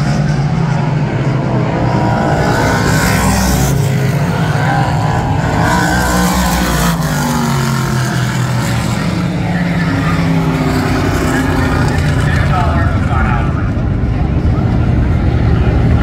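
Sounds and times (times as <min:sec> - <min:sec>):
race car engines: 0:00.0 - 0:16.0.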